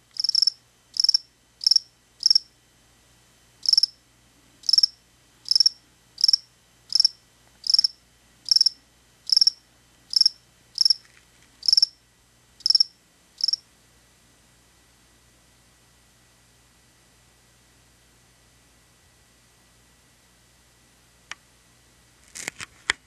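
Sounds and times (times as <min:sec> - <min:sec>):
cricket chirping: 0:00.1 - 0:02.5, 0:03.6 - 0:04.0, 0:04.6 - 0:11.0, 0:11.6 - 0:12.0, 0:12.6 - 0:13.6.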